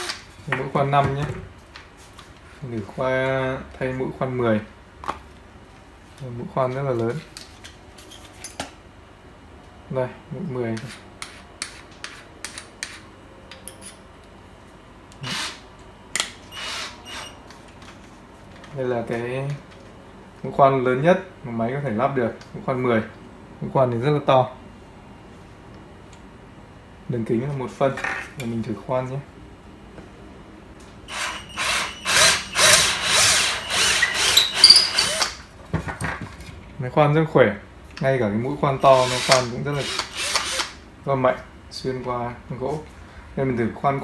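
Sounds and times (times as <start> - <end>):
drill chuck grating: 15.2 - 15.6, 16.5 - 17.4, 31.1 - 35.4, 38.8 - 40.8.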